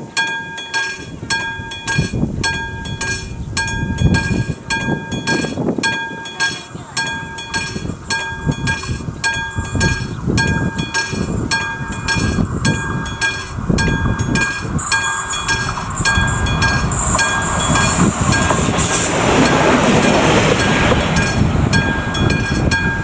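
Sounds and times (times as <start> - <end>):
level-crossing bell ringing: 0.0 - 23.0
train rumbling past: 0.0 - 23.0
high wheel screech: 7.5 - 22.9.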